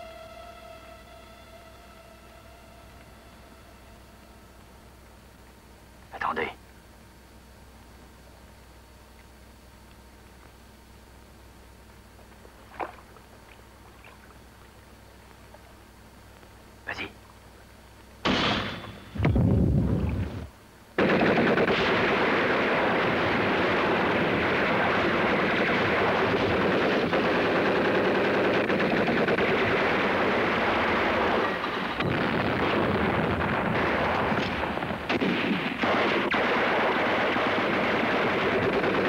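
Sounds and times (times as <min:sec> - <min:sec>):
gunshots: 0:18.2 - 0:19.2, 0:21.0 - 0:39.0
machine-gun fire: 0:18.2 - 0:19.2, 0:21.0 - 0:39.0.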